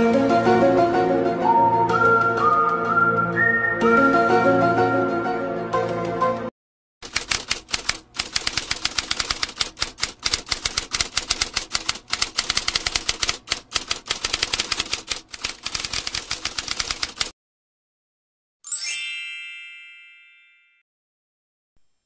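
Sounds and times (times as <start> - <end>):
typewriter keys clacking: 7.0 - 17.3.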